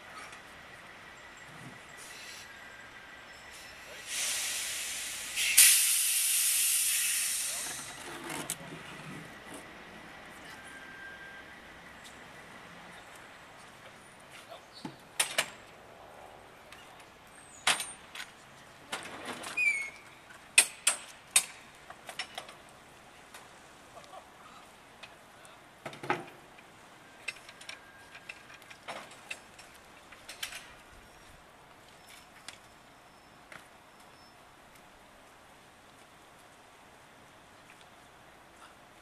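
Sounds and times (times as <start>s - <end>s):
door squeak: 19.4s - 20.1s.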